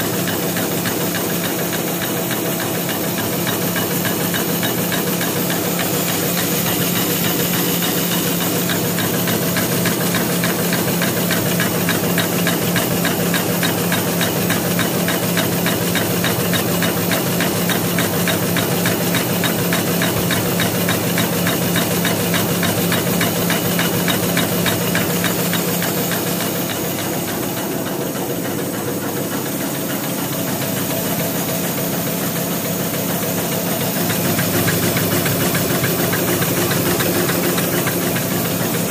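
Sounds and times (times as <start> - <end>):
paper folding machine clattering: 32.0 - 38.9.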